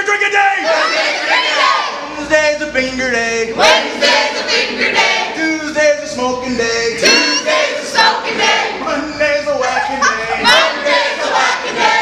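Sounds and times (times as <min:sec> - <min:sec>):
group singing a drinking chant: 0:03.3 - 0:09.2, 0:10.2 - 0:12.0.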